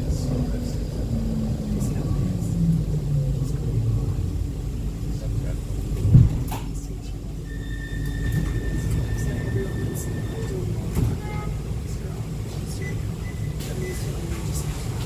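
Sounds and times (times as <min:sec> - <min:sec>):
low rumble of tram: 0:00.0 - 0:15.0
street traffic: 0:00.0 - 0:15.0
short beeps: 0:12.7 - 0:14.1.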